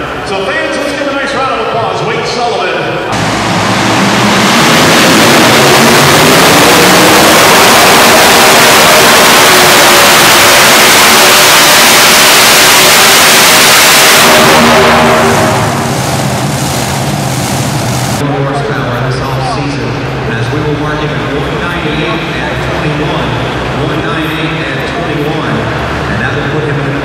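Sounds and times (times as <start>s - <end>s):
tractor engines at full throttle: 3.0s - 18.5s.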